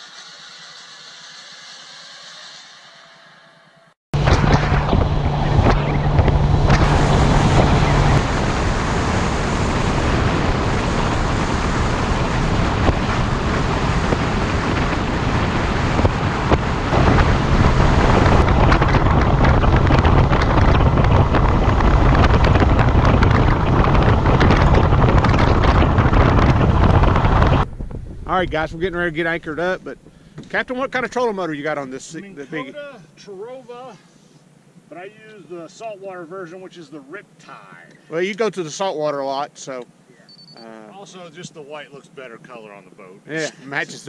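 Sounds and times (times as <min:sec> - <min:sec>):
wind noise on microphone: 0:04.2 - 0:31.4
outboard engine hum: 0:04.2 - 0:35.1.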